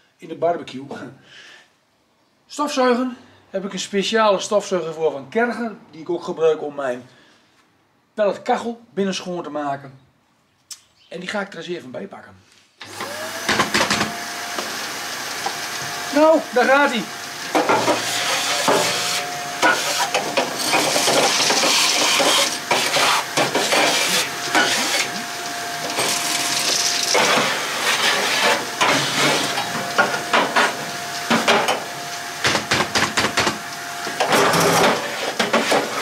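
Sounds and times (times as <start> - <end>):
vacuum cleaner running: 12.8 - 36.0
nozzle scraping against steel: 17.7 - 25.2.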